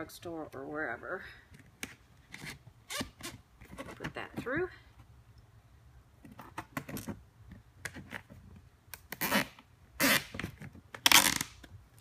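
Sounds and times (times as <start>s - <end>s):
zip tie scraping through plastic: 9.1s - 11.6s.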